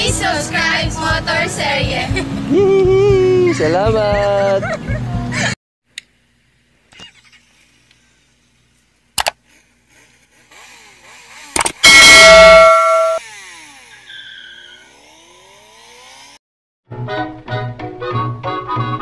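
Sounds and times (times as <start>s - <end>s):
bell ding: 11.8s - 13.2s.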